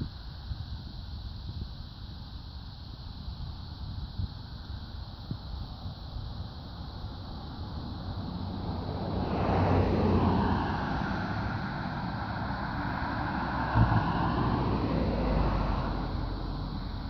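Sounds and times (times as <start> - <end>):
car passing by: 6.8 - 17.0.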